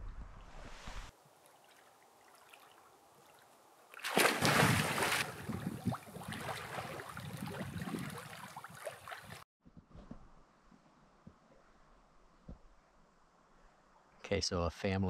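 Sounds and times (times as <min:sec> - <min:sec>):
swimming strokes sloshing: 0:01.3 - 0:09.4
person splashing into water: 0:01.6 - 0:09.4.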